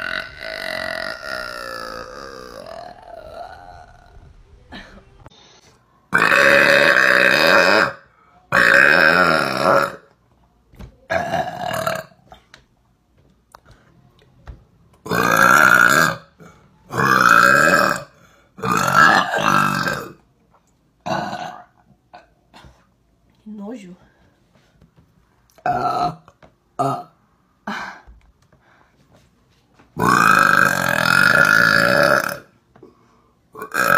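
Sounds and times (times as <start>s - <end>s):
woman burping loudly: 0.0s - 5.2s, 6.1s - 10.1s, 11.1s - 12.4s, 15.0s - 20.2s, 21.0s - 22.4s, 25.6s - 27.8s, 30.0s - 32.6s, 33.6s - 33.9s.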